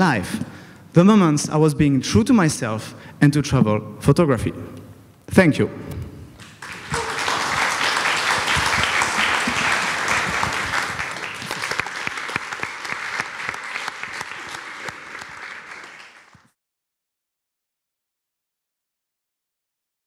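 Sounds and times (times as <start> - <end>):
audience applauding: 6.4 - 16.6.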